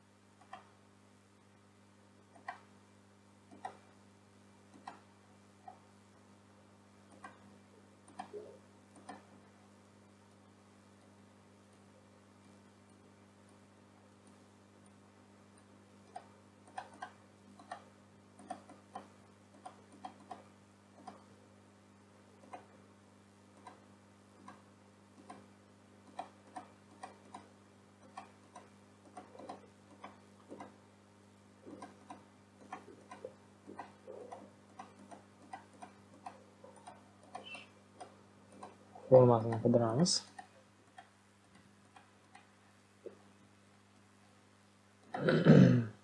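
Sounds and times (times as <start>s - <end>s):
faint electrical hum: 0.0s - 46.0s
mouse and keyboard clicking: 8.1s - 9.3s, 16.1s - 21.3s, 26.0s - 30.8s, 31.7s - 38.8s.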